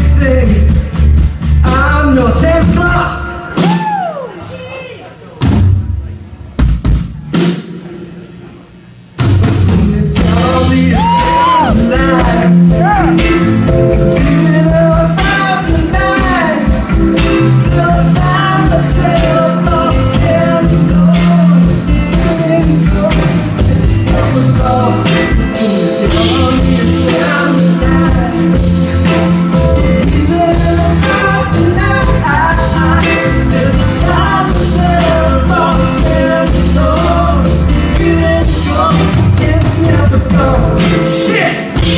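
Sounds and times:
rock band playing: 0.0s - 4.5s, 5.3s - 41.9s
lead singer singing: 9.7s - 41.9s.

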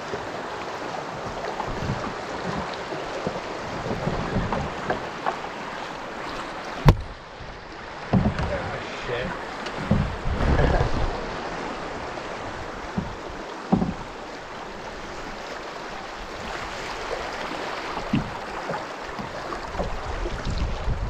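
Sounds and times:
river current rushing: 0.0s - 21.0s
canoe thumps: 1.6s - 15.3s, 17.9s - 20.0s.

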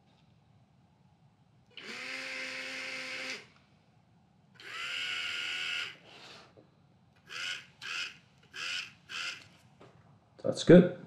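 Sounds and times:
small motors whining: 1.8s - 3.5s, 4.6s - 6.1s, 7.2s - 9.6s.

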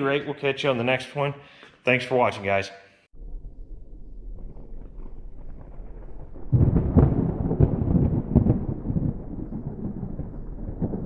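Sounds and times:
thunder rumble and cracks: 3.1s - 11.0s.

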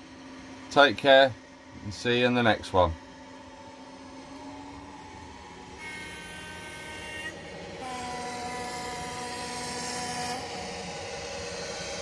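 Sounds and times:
model locomotive horn: 5.8s - 11.0s.

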